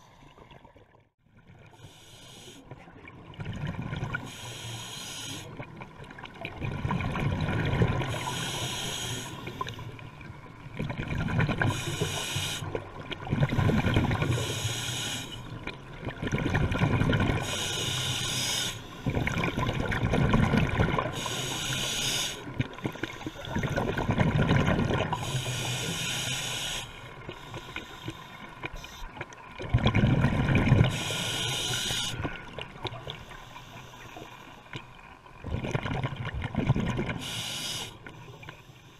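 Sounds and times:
regulator hiss on inhale: 0:01.7 - 0:02.8, 0:04.3 - 0:05.5, 0:08.1 - 0:10.0, 0:11.7 - 0:12.8, 0:14.2 - 0:15.5, 0:17.4 - 0:19.4, 0:21.1 - 0:23.9, 0:25.1 - 0:29.1, 0:30.9 - 0:32.3, 0:33.1 - 0:34.8, 0:37.2 - 0:38.9
exhaled bubbles rushing: 0:06.3 - 0:08.2, 0:16.0 - 0:17.4, 0:19.2 - 0:21.1, 0:23.5 - 0:25.2, 0:29.6 - 0:31.0, 0:35.4 - 0:37.2.

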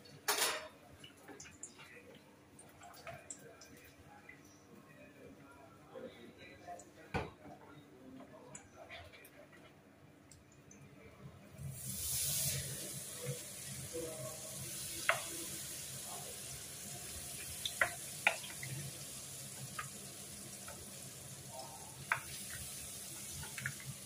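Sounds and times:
batter sizzling in oil: 0:11.6 - 0:24.0.

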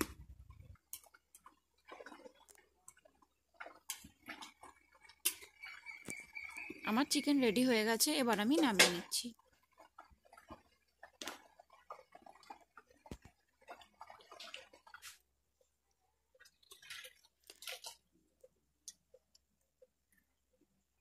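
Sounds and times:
clicks and knocks of a pot: 0:00.0 - 0:06.9, 0:08.3 - 0:15.2
soft wet food sounds: 0:00.0 - 0:21.0.

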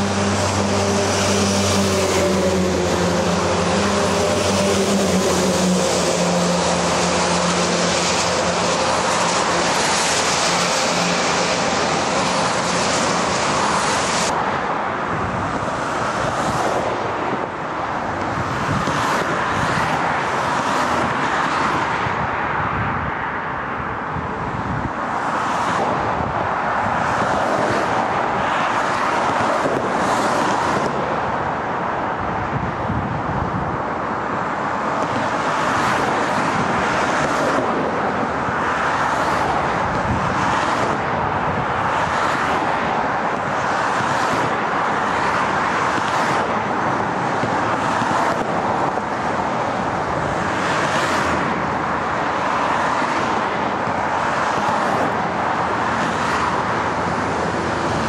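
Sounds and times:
tyres hissing on wet road: 0:00.0 - 0:14.5, 0:34.5 - 0:58.0
cars and trucks passing: 0:00.0 - 0:58.0.

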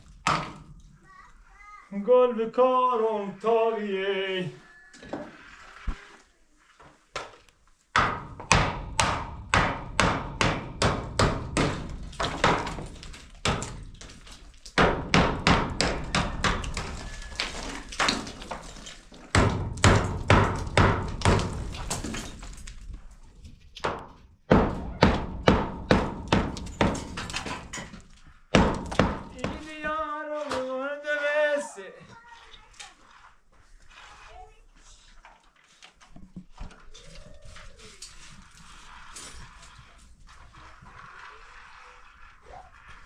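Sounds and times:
hammer striking cinder block: 0:00.2 - 0:00.7, 0:07.9 - 0:22.5, 0:23.8 - 0:27.9, 0:28.5 - 0:29.9.

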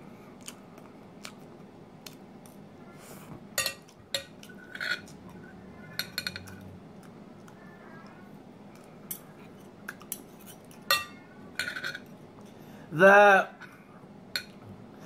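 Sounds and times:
cutlery scraping ceramic plate: 0:03.6 - 0:05.2, 0:05.9 - 0:06.6, 0:09.1 - 0:12.1.

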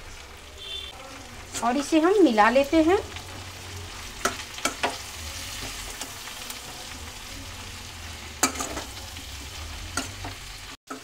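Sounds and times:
oil frying sizzle: 0:00.0 - 0:11.0
spoon clinking and scraping pan: 0:08.4 - 0:09.0, 0:09.9 - 0:11.0.

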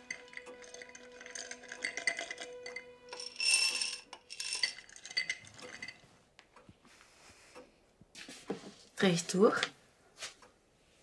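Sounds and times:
drink being poured: 0:00.0 - 0:06.0
ice cubes clinking in glass: 0:00.0 - 0:06.0.

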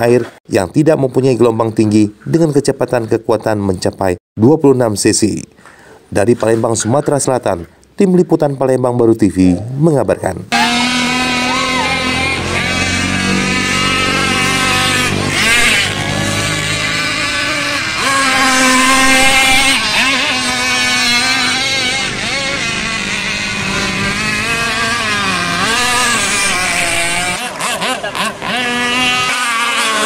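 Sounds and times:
model speedboat engines whining: 0:10.5 - 0:30.0.

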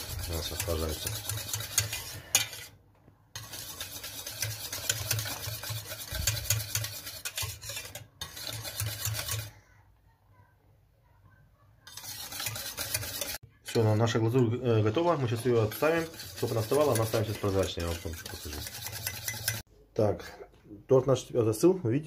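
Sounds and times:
whisk clinking in metal pot: 0:00.0 - 0:02.8, 0:03.4 - 0:09.5, 0:11.9 - 0:19.7.

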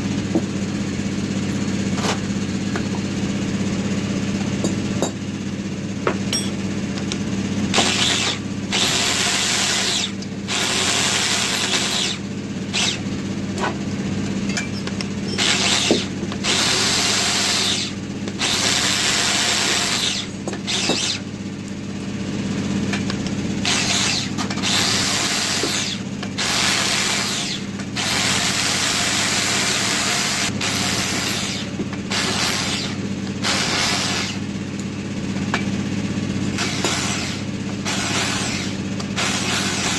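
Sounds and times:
electric drill whine: 0:07.7 - 0:13.0, 0:14.8 - 0:21.3, 0:23.6 - 0:34.5, 0:36.6 - 0:39.9.

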